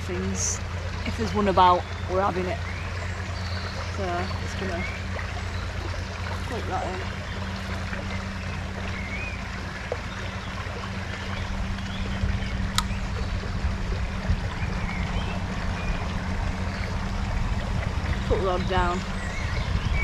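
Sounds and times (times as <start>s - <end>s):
running water: 0.0s - 20.0s
uneven low rumble: 0.0s - 20.0s
sharp tick: 12.7s - 13.0s.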